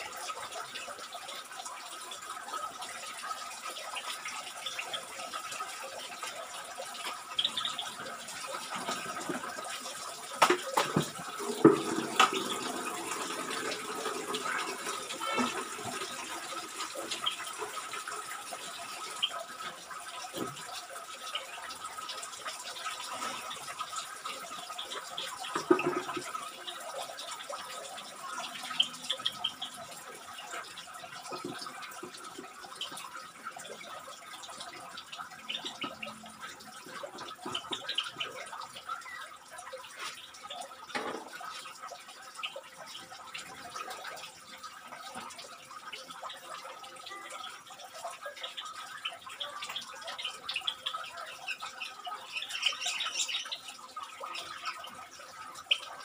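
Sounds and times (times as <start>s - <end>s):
watery background noise: 0.0s - 56.0s
high bird chirps: 50.2s - 53.7s.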